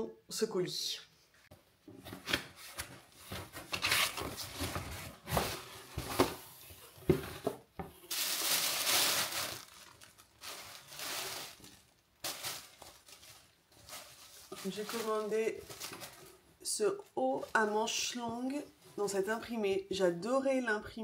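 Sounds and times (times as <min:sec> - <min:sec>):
wrapping crinkling: 0:08.0 - 0:16.5
packing tape tearing: 0:08.1 - 0:16.2.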